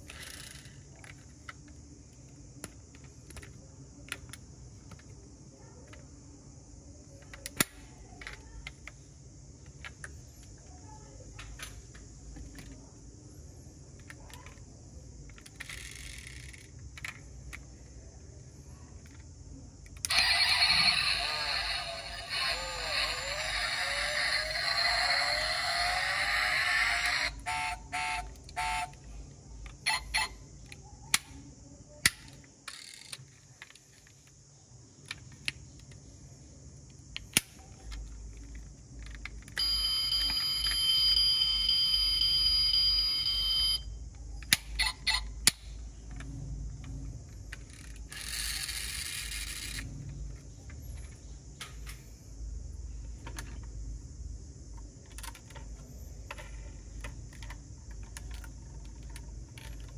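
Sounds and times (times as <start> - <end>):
toy car parts clicking: 0.0 - 1.8, 7.2 - 9.0, 14.0 - 17.6, 19.0 - 29.0, 32.0 - 34.3, 37.1 - 40.9, 47.4 - 49.9, 54.7 - 59.9
high electronic buzzing tone: 20.1 - 26.2.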